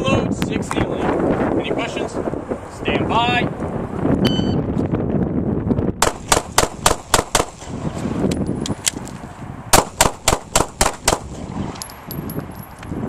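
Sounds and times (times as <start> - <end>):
pistol shots: 6.0 - 7.7, 9.7 - 11.4.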